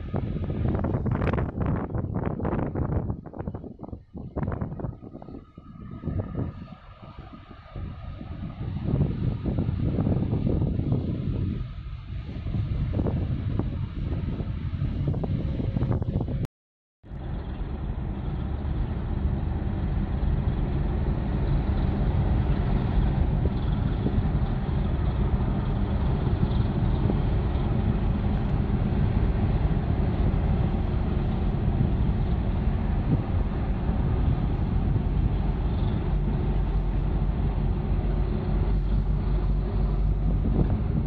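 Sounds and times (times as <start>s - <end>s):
water churning along hull: 0.0s - 16.4s, 17.1s - 41.0s
ship diesel engine rumble: 0.0s - 41.0s.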